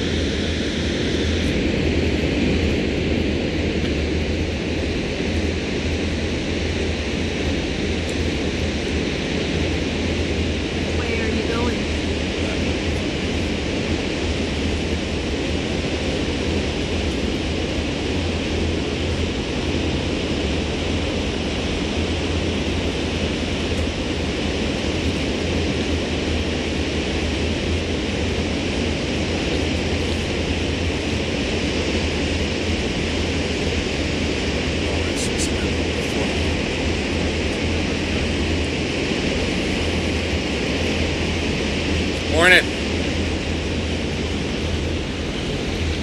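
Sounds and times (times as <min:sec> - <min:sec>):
hiss of wind and water: 0:00.0 - 0:46.0.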